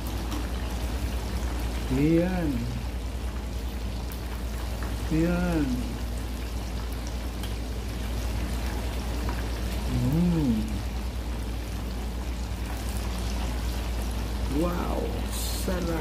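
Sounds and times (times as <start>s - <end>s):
deep-frying sizzle in oil: 0.0s - 16.0s.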